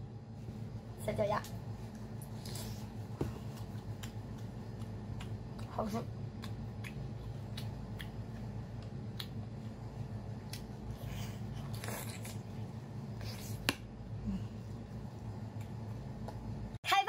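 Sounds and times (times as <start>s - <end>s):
chewing with wet clicks and smacks: 3.5s - 10.8s.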